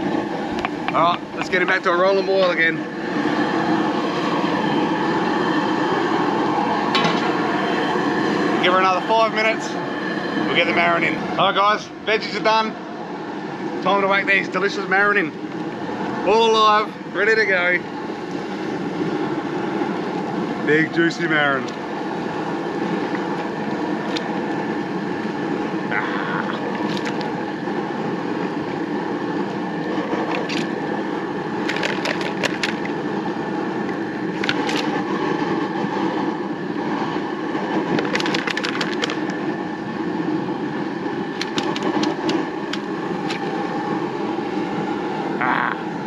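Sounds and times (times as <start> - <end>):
pot boiling: 0.0 - 11.3, 15.4 - 46.0
gas burner running: 0.0 - 46.0
sharp clicks and cracks: 31.6 - 32.9, 34.4 - 34.9, 37.9 - 39.4, 41.4 - 43.5.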